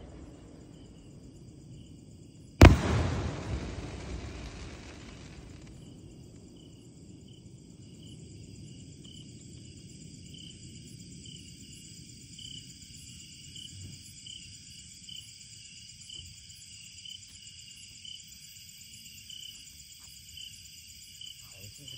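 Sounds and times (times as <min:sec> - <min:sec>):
insect chirps: 0:00.0 - 0:21.9
insects trilling: 0:00.0 - 0:21.9
low rumble: 0:02.6 - 0:05.8.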